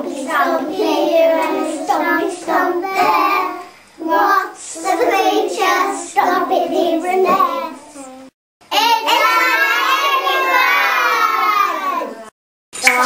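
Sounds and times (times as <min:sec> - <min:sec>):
young children singing: 0:00.0 - 0:12.3.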